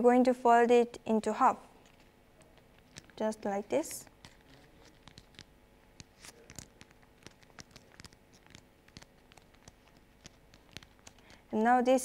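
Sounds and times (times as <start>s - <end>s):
paper being folded and creased: 1.8s - 3.3s, 4.0s - 11.4s.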